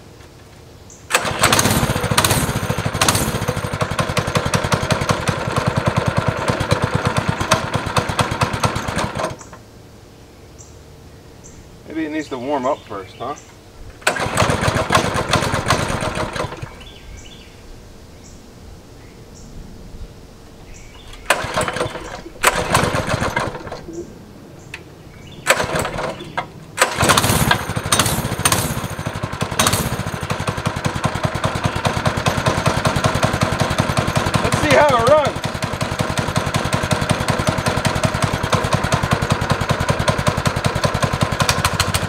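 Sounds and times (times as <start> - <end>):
go-kart engine starting and running: 1.1 - 9.6, 14.0 - 17.0, 21.0 - 24.1, 25.3 - 42.0.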